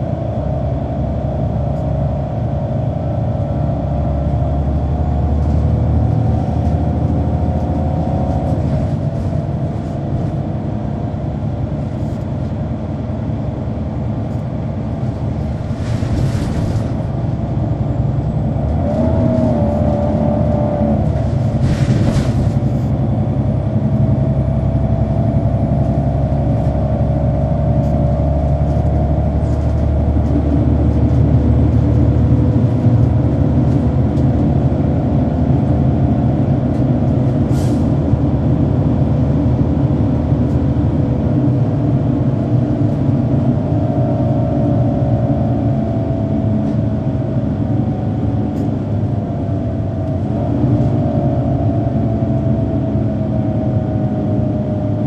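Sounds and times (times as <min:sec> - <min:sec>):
bus diesel engine running: 0:00.0 - 0:55.0
drivetrain howl: 0:17.2 - 0:55.0.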